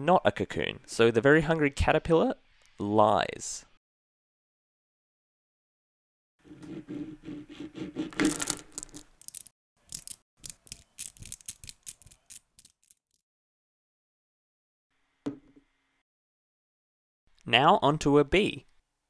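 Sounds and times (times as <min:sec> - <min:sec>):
magnet spheres clicking: 0:08.3 - 0:13.2.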